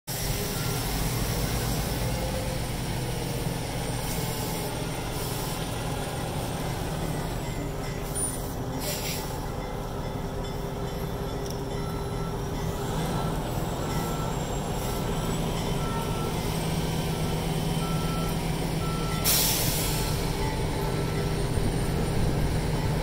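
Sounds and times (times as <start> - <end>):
diesel engines rumbling: 0.1 - 23.0
air hiss: 4.0 - 5.8, 8.1 - 9.5, 19.2 - 20.4.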